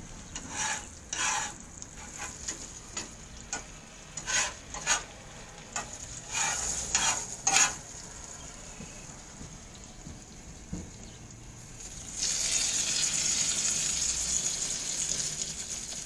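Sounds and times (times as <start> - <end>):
onion sizzling in butter: 0.0 - 9.3, 11.7 - 16.0
utensil scraping pan: 0.3 - 5.1, 5.8 - 7.9.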